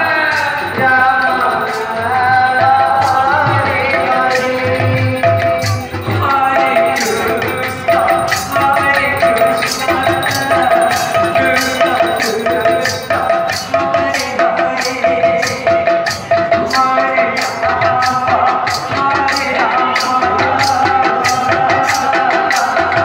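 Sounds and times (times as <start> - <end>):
repeating melodic phrase: 0.0 - 13.8
hand drum playing: 0.0 - 14.0
hand cymbals striking: 0.0 - 18.2.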